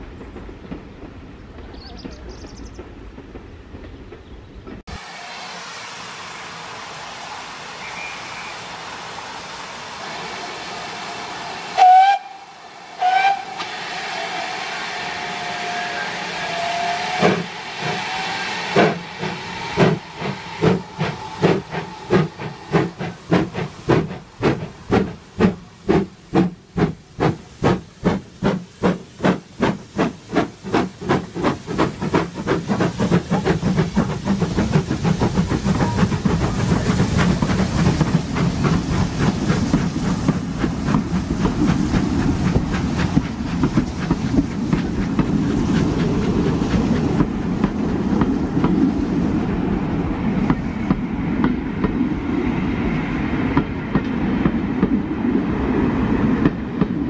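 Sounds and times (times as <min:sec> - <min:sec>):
steam locomotive exhaust beats: 0:00.0 - 0:57.0
steam hissing: 0:04.8 - 0:54.9
steam locomotive whistle: 0:05.0 - 0:08.9, 0:09.9 - 0:23.0.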